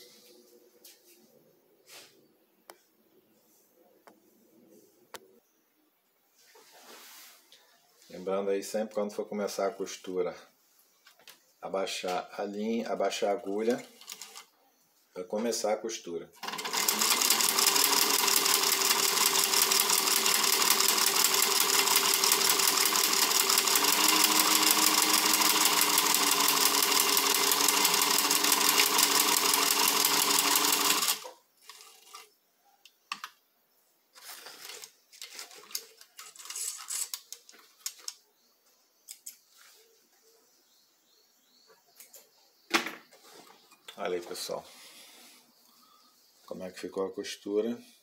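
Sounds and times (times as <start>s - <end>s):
sewing machine running: 16.4s - 32.3s.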